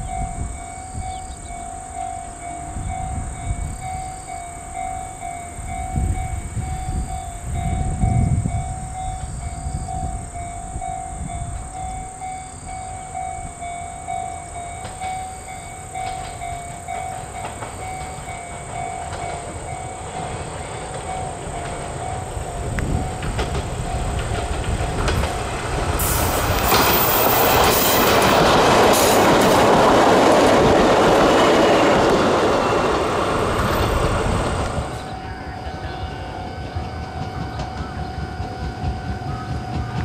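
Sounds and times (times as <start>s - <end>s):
wind rumble on microphone: 0.0s - 1.6s, 2.7s - 4.4s, 5.6s - 13.7s, 19.1s - 35.8s
electric train rumble: 0.0s - 40.0s
level crossing alarm ringing: 0.0s - 40.0s.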